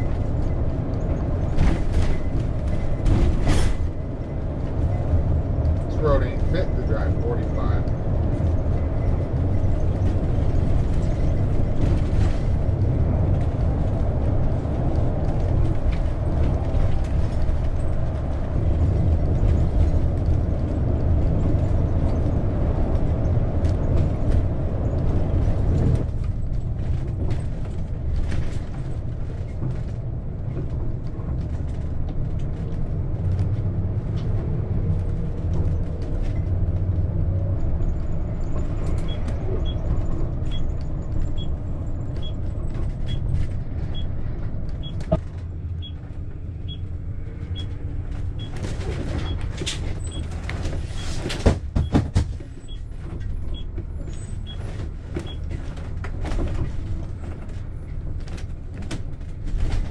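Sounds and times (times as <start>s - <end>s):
engine and road rumble: 0.0s - 59.9s
rattles and clicks in vehicle cabin: 0.0s - 59.9s.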